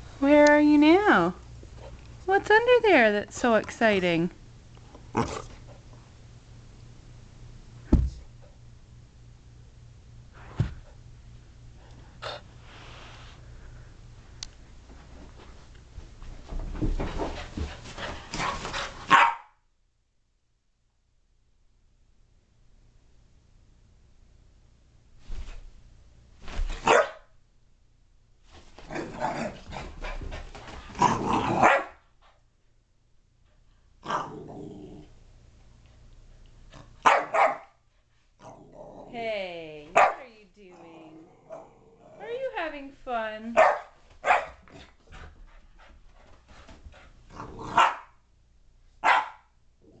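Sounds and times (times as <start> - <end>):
puppy barking and growling: 19.1 - 19.5, 26.8 - 27.2, 30.9 - 32.0, 34.0 - 35.0, 36.8 - 37.8, 39.9 - 42.2, 43.6 - 44.7, 47.3 - 48.2, 49.0 - 50.0
puppy barking: 19.1 - 19.6, 26.8 - 27.3, 31.6 - 32.0, 37.0 - 37.8, 40.0 - 40.2, 43.6 - 44.6, 47.7 - 48.2, 49.0 - 49.5.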